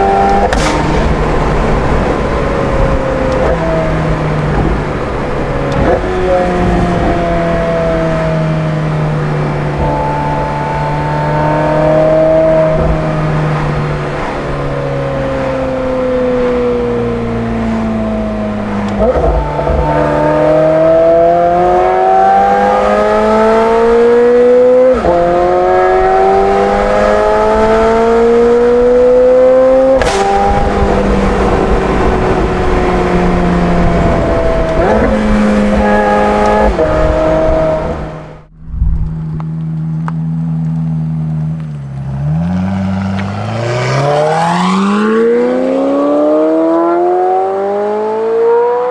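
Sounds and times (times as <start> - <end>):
sports car engine accelerating: 0.0 - 48.9.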